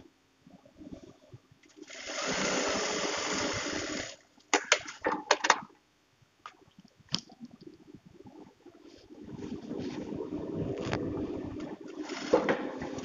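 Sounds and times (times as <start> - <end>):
sewing machine running: 1.9 - 4.2, 11.9 - 13.0.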